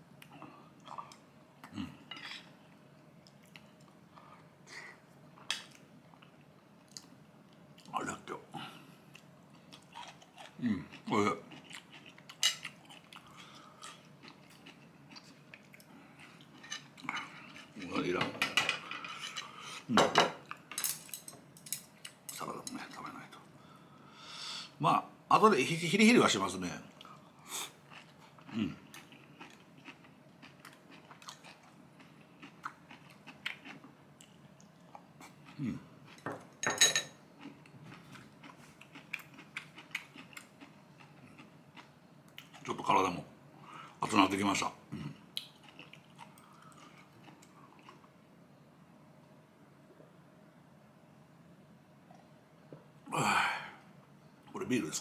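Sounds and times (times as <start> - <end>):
person chewing: 9.1 - 17.8, 27.0 - 36.2, 37.4 - 42.7, 45.1 - 48.1
cutlery clinking against dish: 36.2 - 37.2.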